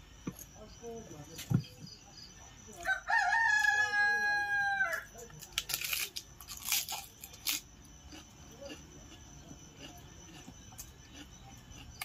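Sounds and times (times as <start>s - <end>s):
rooster crowing: 2.8s - 5.2s
sharp crunching: 4.9s - 12.0s.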